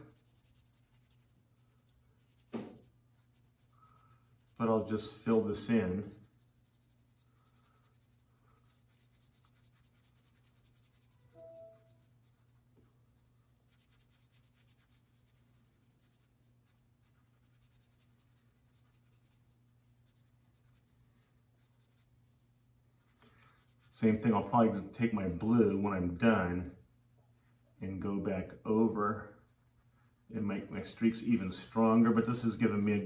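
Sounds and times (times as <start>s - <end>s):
crayon scratching on paper: 0.0s - 22.1s
faint pitched squeak: 11.3s - 12.1s.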